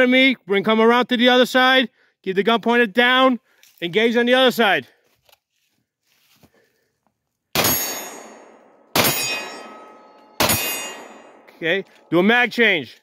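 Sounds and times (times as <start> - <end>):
pistol shots with ringing: 7.6 - 12.0.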